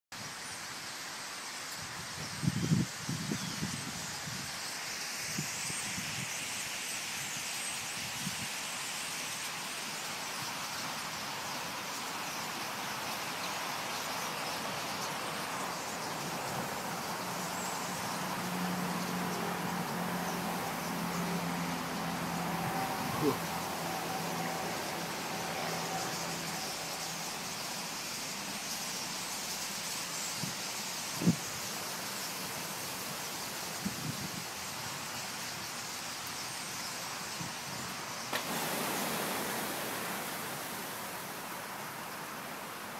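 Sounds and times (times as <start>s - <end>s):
flock of starlings rustling overhead: 0.2s - 42.9s
starling flock chattering: 22.8s - 28.5s.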